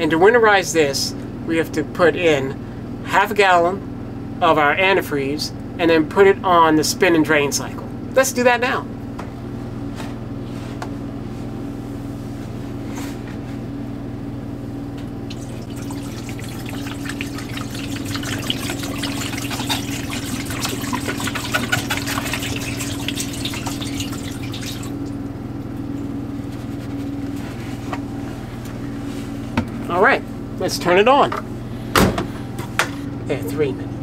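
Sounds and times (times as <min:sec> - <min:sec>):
steady low hum: 0:10.8 - 0:30.7
liquid splashing into drum: 0:15.3 - 0:25.2.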